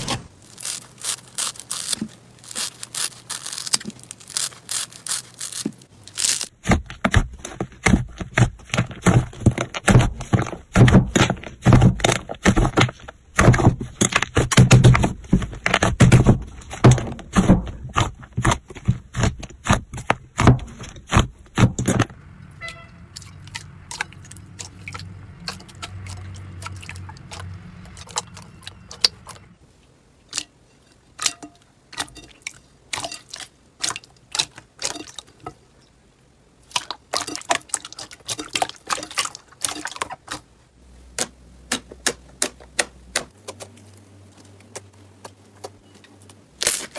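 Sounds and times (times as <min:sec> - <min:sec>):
slime squelching and popping: 0:00.4 - 0:22.0.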